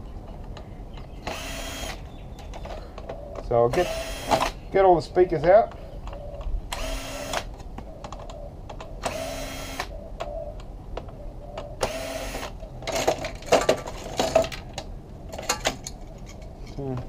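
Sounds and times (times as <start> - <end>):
cordless drill whining: 1.2 - 2.0, 3.8 - 4.6, 6.7 - 7.5, 9.0 - 9.9, 11.8 - 12.6
plastic parts clicking and rattling: 12.4 - 17.0.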